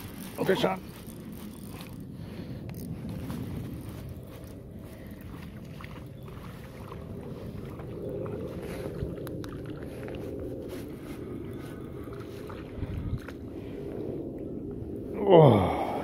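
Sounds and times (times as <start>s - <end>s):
fishing reel winding: 0.0s - 2.0s.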